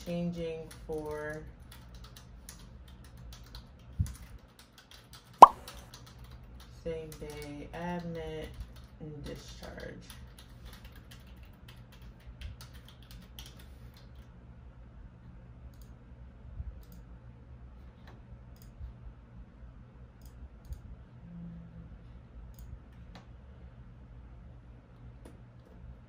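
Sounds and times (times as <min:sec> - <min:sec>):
typing on a computer keyboard: 0:00.0 - 0:14.3
low steady hum: 0:14.2 - 0:26.0.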